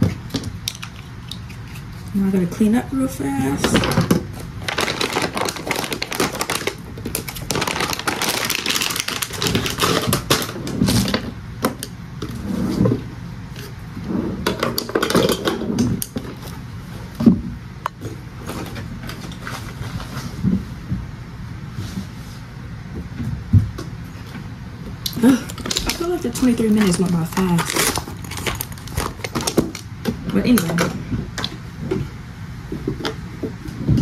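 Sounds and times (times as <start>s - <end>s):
makeup products clattering: 3.5s - 10.6s, 25.4s - 29.8s.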